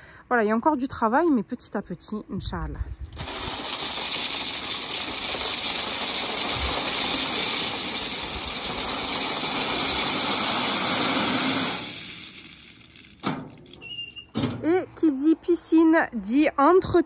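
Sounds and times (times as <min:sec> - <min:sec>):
gravel pouring onto gravel: 0:03.2 - 0:13.8.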